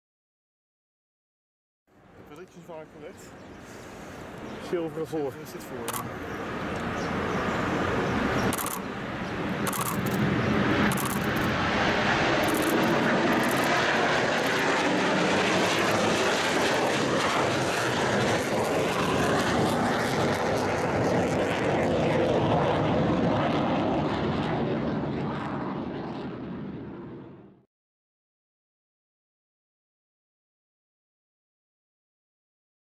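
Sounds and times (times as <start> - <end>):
jet aircraft roar: 2.1 - 27.6.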